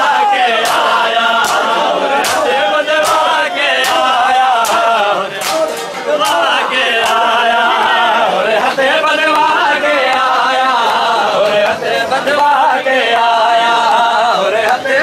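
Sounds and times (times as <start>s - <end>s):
crowd of men chanting: 0.0s - 15.0s
hands slapping bare chests: 0.6s - 7.3s.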